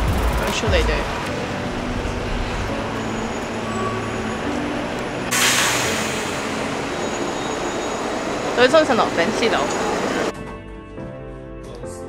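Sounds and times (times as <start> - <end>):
heavy vehicle engine running: 0.0 - 10.3
air brakes hissing: 2.7 - 8.9.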